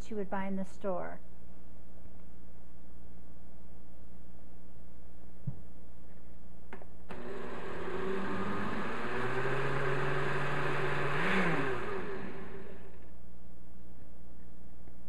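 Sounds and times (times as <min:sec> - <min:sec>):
blender motor running: 0:07.1 - 0:13.0.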